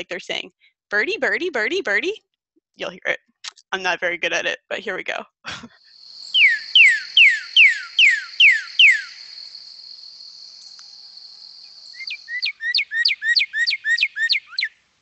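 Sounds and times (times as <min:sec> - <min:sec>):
high insect buzz: 0:05.8 - 0:13.4
bird whistles sliding downward: 0:06.2 - 0:09.4, 0:10.6 - 0:14.7.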